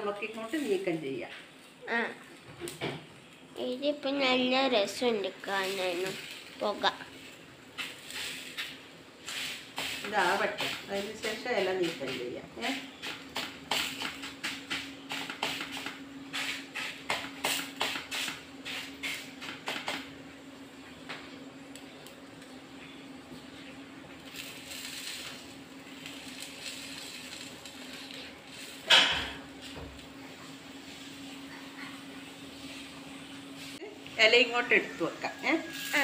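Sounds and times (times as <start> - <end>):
banana leaf crackling: 24.2 - 29.8.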